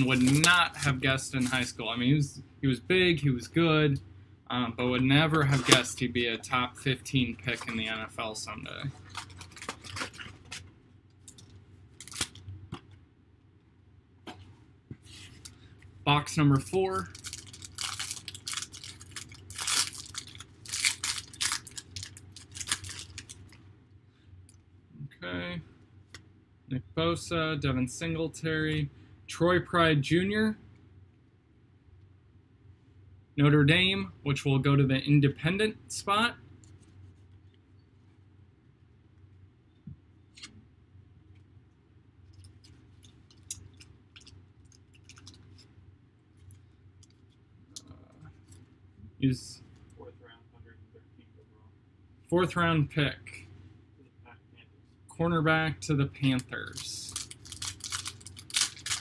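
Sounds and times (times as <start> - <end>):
foil wrappers ripping and crinkling: 0.0 - 1.7, 9.0 - 10.6, 12.0 - 12.4, 17.0 - 23.5, 56.7 - 59.0
trading cards being handled: 0.0 - 1.8, 7.1 - 13.0, 56.3 - 59.0
low steady hum: 0.0 - 59.0.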